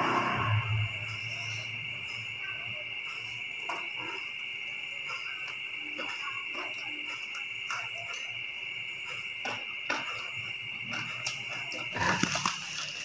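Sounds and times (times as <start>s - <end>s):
crickets chirring: 0.0s - 13.0s
person chewing food: 11.2s - 13.0s.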